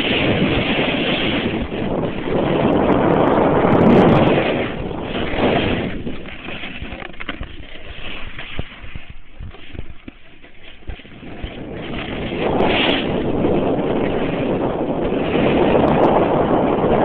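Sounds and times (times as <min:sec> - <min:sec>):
wind buffeting the microphone: 0:00.0 - 0:17.0.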